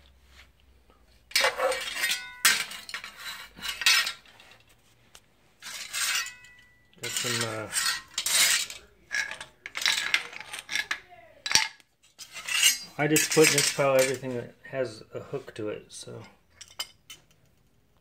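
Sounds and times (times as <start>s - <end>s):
metal tools clanking on tile: 1.3s - 4.6s, 5.6s - 14.3s, 16.1s - 17.6s.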